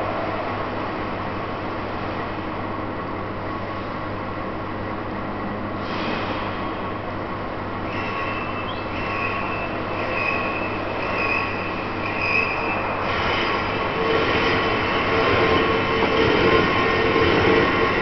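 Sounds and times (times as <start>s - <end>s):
lower steady machine tone: 0.0s - 18.0s
wheel lathe high tone: 7.9s - 18.0s.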